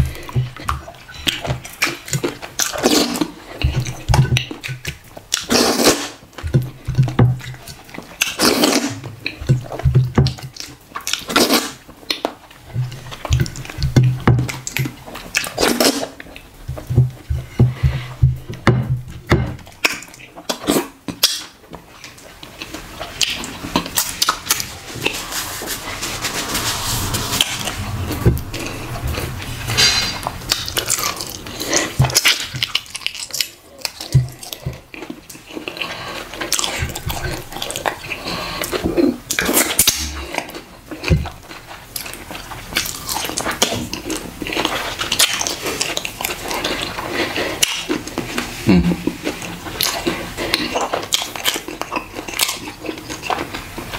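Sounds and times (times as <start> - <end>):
person chewing: 19.7 - 25.2, 30.5 - 53.9.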